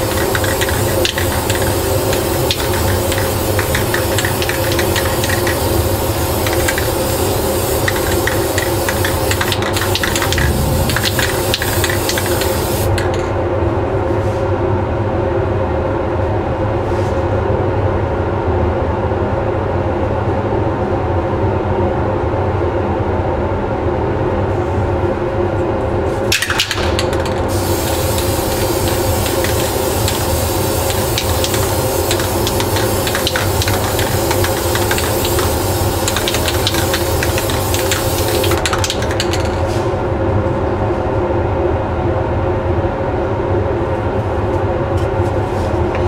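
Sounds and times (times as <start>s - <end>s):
aerosol spray can hissing: 0.0s - 13.2s, 26.4s - 39.6s
extraction fan running: 0.0s - 14.0s, 25.2s - 40.9s.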